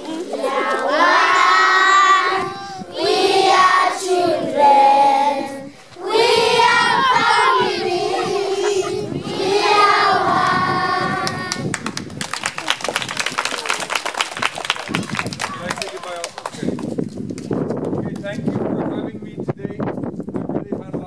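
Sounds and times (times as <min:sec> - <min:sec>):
children singing: 0:00.0 - 0:11.6.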